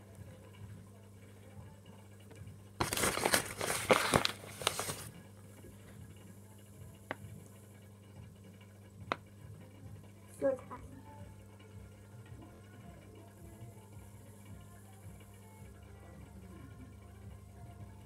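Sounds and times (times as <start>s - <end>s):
crinkling handling noise: 2.8s - 5.2s.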